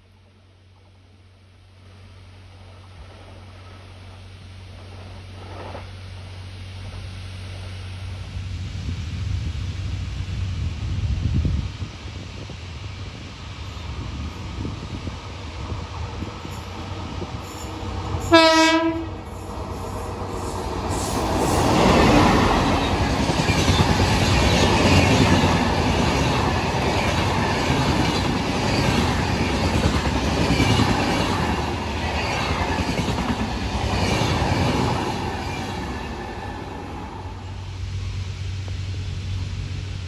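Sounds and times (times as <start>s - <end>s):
train coaches rumbling: 9.9s - 40.0s
locomotive horn blast: 17.7s - 19.3s.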